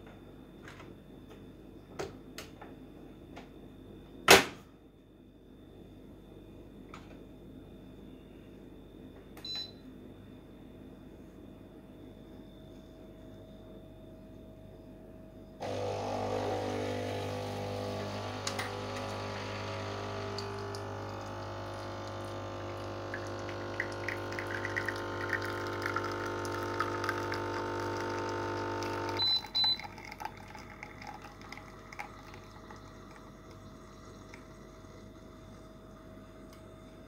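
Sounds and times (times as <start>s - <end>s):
coffee sputtering: 15.6s - 36.4s
espresso machine pump humming: 15.6s - 37.0s.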